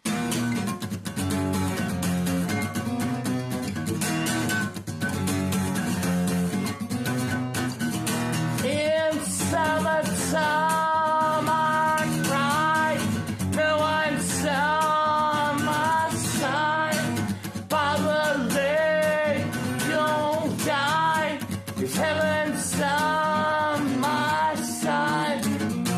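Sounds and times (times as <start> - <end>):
acoustic guitar strumming chords: 0.0 - 25.9
person singing: 8.6 - 25.9.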